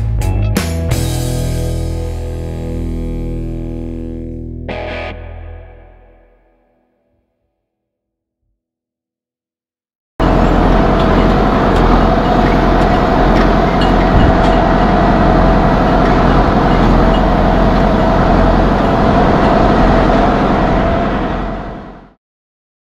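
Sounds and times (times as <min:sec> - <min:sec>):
tractor engine running: 0:10.2 - 0:22.1.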